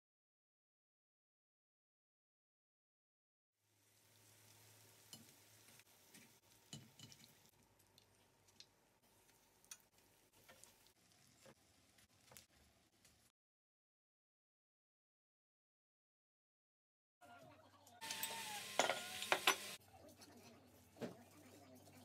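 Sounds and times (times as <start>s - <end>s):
spring rolls sizzling in oil: 3.6s - 13.3s, 18.0s - 19.8s.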